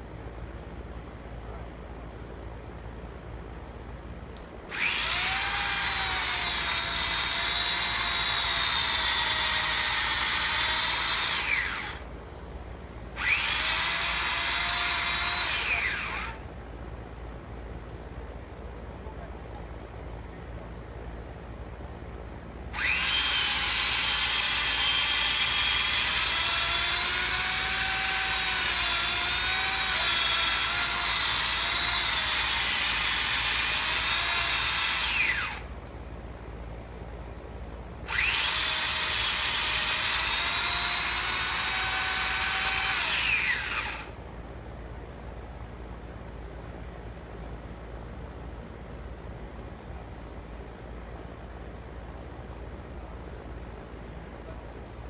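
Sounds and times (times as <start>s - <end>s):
electric saw cutting wood: 4.7s - 12.0s, 13.2s - 16.4s, 22.7s - 35.7s, 38.1s - 44.2s.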